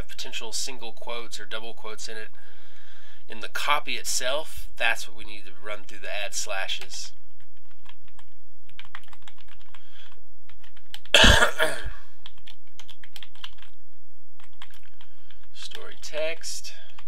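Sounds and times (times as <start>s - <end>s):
typing on keyboard: 7.5s - 11.1s, 12.2s - 13.8s, 14.4s - 16.0s
person coughing: 11.2s - 12.1s.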